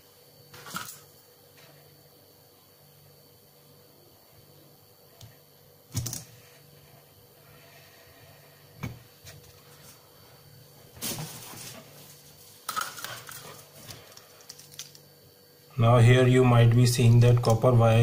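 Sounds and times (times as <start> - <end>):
scraping or rustling: 11.0 - 14.8.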